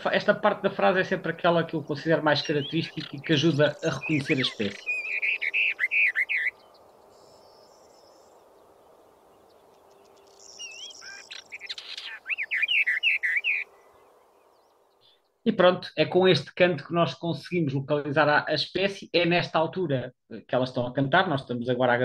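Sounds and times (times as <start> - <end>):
warbler singing: 0.0 - 15.4
faint steady hiss: 6.5 - 12.3, 13.6 - 16.8.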